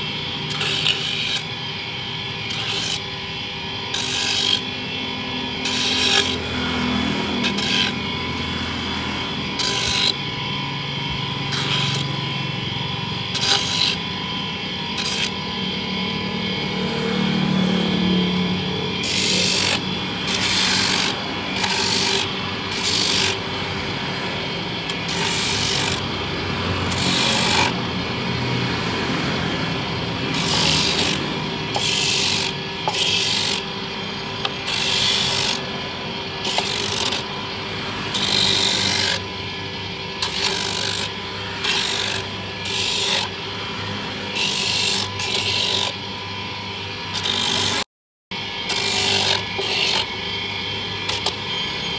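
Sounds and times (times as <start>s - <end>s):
rasping scrapes of coconut grating: 0.0s - 1.6s, 2.5s - 3.1s, 5.6s - 10.3s, 11.4s - 12.3s, 13.3s - 15.6s, 16.6s - 33.7s, 34.4s - 35.7s, 36.4s - 39.3s, 40.1s - 46.2s, 47.0s - 47.9s, 48.6s - 50.1s, 51.0s - 51.9s
electric grater motor hum: 0.0s - 51.9s.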